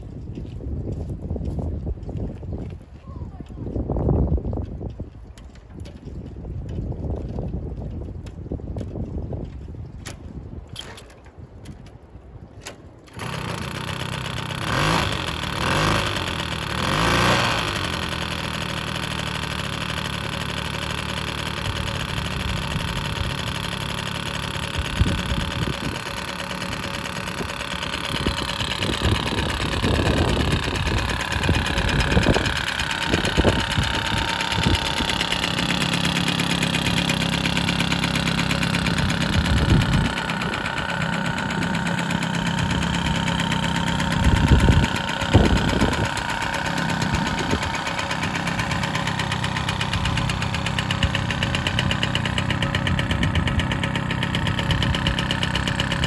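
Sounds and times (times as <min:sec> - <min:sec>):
moped engine idling: 0:13.1 - 0:56.0.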